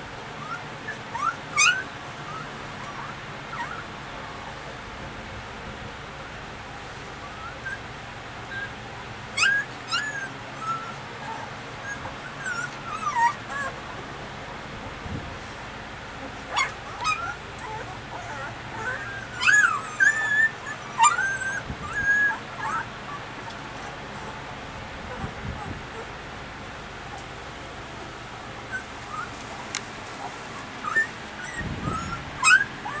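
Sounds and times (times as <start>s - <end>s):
puppies squeaking and whimpering: 0.4s - 3.9s, 7.1s - 14.0s, 16.1s - 24.5s, 25.1s - 26.1s, 28.4s - 33.0s.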